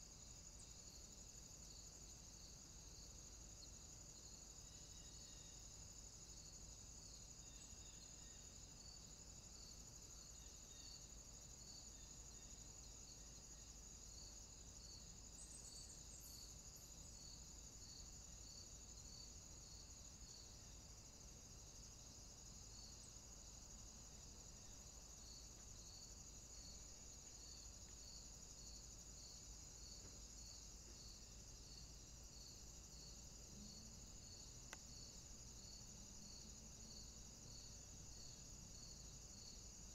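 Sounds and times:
crickets chirping: 0:00.0 - 0:39.9.

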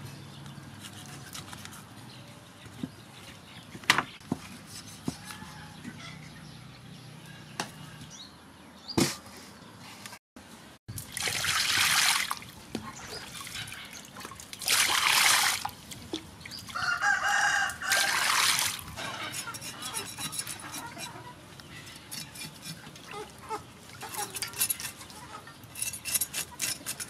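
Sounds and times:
water splashing over fish: 0:11.0 - 0:12.5, 0:13.3 - 0:15.9, 0:17.9 - 0:18.8.

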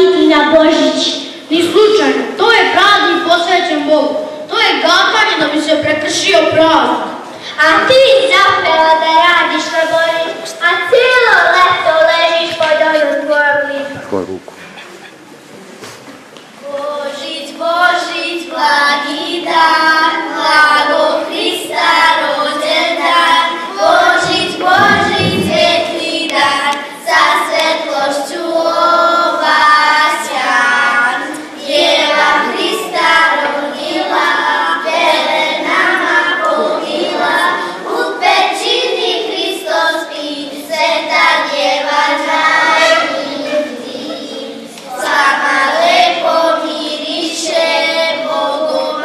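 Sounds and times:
girls singing into a microphone: 0:16.5 - 0:49.0.

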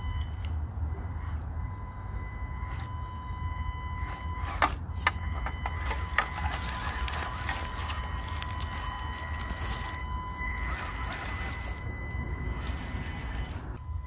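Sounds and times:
toy car motor whining: 0:03.9 - 0:14.0.

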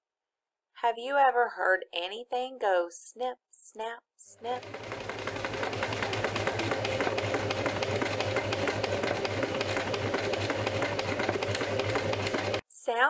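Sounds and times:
sewing machine running: 0:04.4 - 0:12.7.

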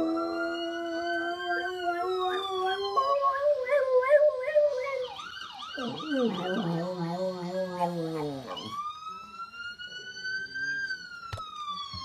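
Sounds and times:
dog howling: 0:00.0 - 0:08.8
wailing emergency siren: 0:00.0 - 0:12.0.

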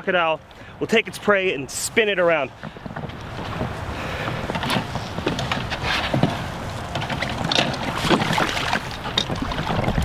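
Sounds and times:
wind rumble on microphone: 0:02.5 - 0:10.0
knocks and clicks of fishing gear: 0:02.6 - 0:10.0.

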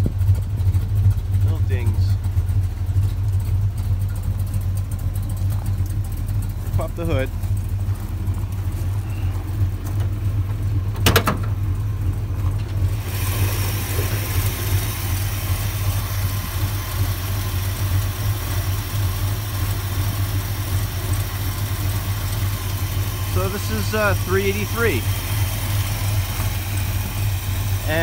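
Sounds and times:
vee eight engine idling: 0:00.0 - 0:28.0
hiss and whir: 0:12.9 - 0:17.1.

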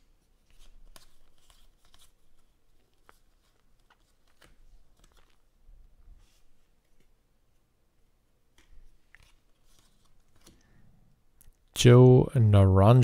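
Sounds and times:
trading cards flipping: 0:00.4 - 0:05.5, 0:08.5 - 0:10.7.

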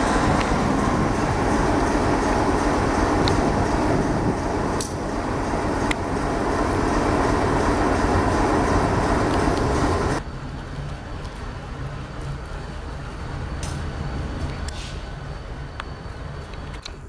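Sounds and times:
diesel locomotive engine rumble: 0:00.0 - 0:17.0.

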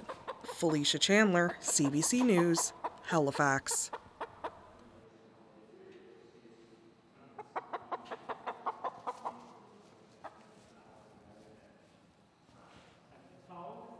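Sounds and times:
hens clucking: 0:00.0 - 0:04.9, 0:07.4 - 0:09.6.

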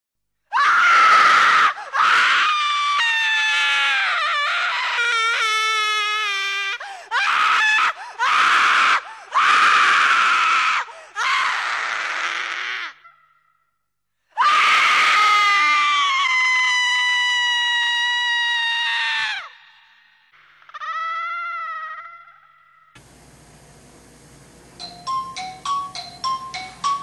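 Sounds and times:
person screaming: 0:14.4 - 0:19.9, 0:20.6 - 0:22.9.

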